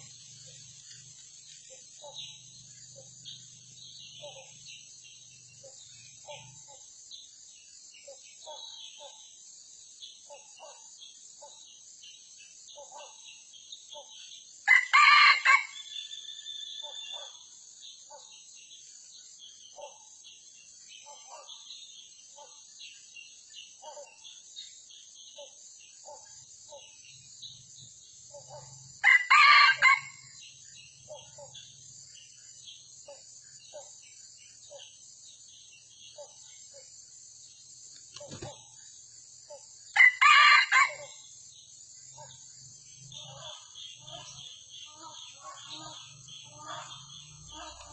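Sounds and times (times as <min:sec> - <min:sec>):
high insect buzz: 0:00.0 - 0:47.9
rooster crowing: 0:14.7 - 0:15.9, 0:29.0 - 0:30.2, 0:40.0 - 0:41.1.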